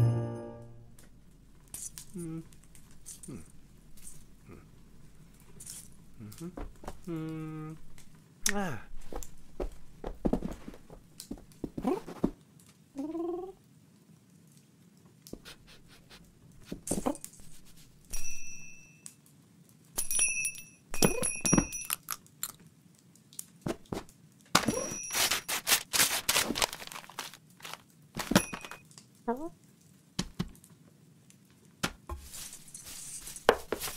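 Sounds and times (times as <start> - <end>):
small bell ringing: 18.1 - 19.1, 20.0 - 22.1
wrapping paper rustling and crunching: 23.9 - 28.8, 32.2 - 33.9.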